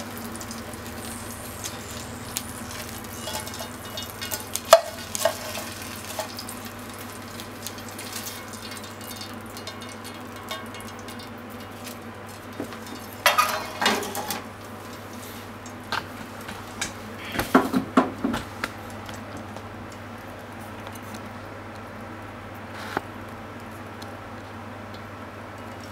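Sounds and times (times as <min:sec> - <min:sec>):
utensil scraping frying pan: 0:00.0 - 0:06.7, 0:12.8 - 0:15.5
low hum and hiss: 0:00.0 - 0:25.9.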